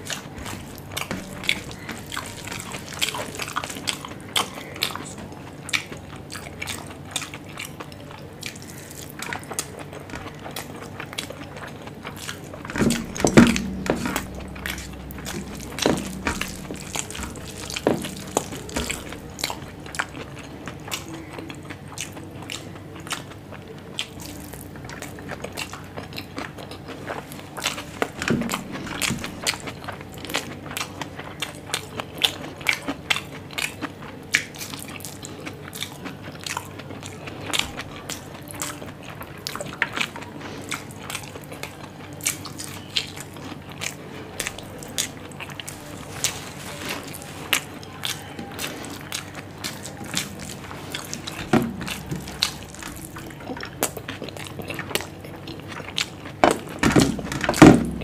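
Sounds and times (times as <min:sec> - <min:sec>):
chewing with wet mouth clicks: 0:00.0 - 0:58.0.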